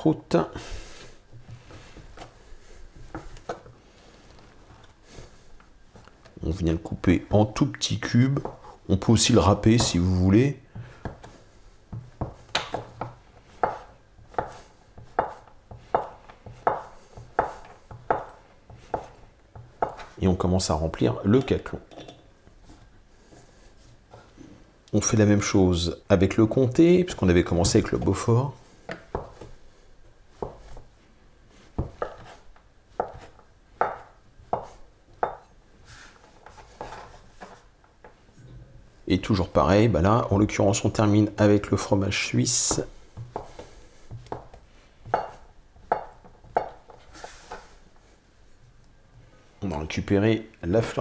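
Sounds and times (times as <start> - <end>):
knife chopping on wooden board: 9.7 - 10.0, 10.8 - 20.1, 28.9 - 29.6, 30.4 - 30.9, 31.8 - 32.4, 33.0 - 35.5, 42.7 - 47.6.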